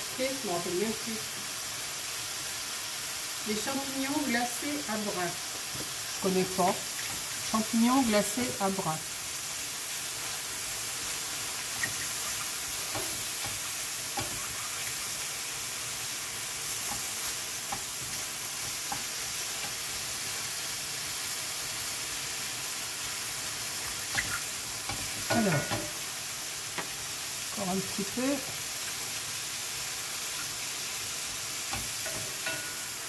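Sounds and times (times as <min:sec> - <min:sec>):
mushrooms sizzling in butter: 0:00.0 - 0:33.0
wooden spoon knocking on pan: 0:12.9 - 0:14.4, 0:24.9 - 0:26.0, 0:31.7 - 0:32.9.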